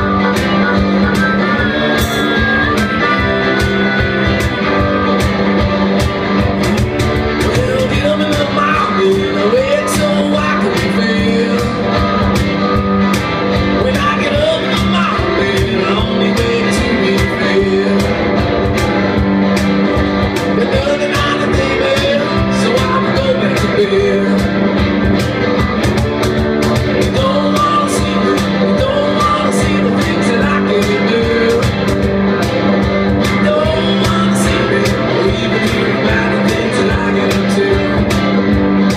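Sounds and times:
electric guitar: 0.0s - 38.9s
steady drum beat: 0.0s - 38.9s
person singing: 7.4s - 12.4s, 13.7s - 19.2s, 20.4s - 24.6s, 27.0s - 32.0s, 33.2s - 38.4s.

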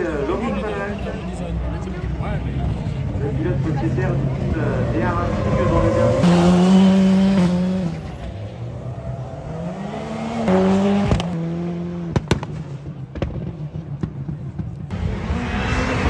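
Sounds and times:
race car engine revving: 3.9s - 12.3s, 14.8s - 16.0s
exhaust bangs and pops: 12.1s - 15.0s.

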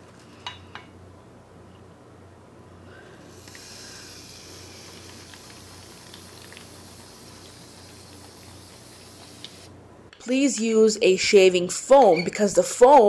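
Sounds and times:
aerosol can spraying: 3.3s - 9.7s.

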